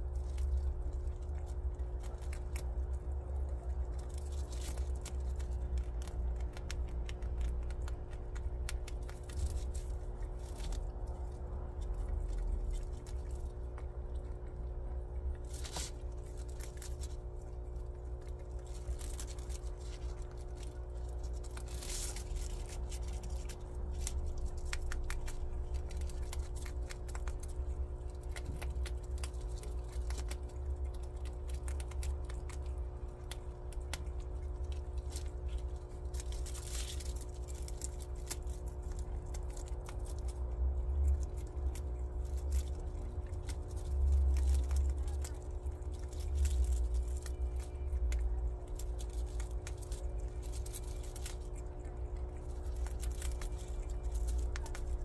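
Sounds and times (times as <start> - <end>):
low rumble: 0.0 - 55.0
prairie dog chewing grass: 0.0 - 55.0
steady low hum: 0.0 - 55.0.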